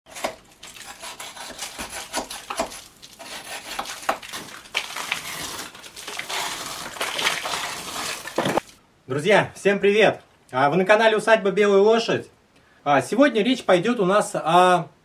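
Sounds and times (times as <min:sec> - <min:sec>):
wallpaper tearing and scraping: 0:00.1 - 0:08.8.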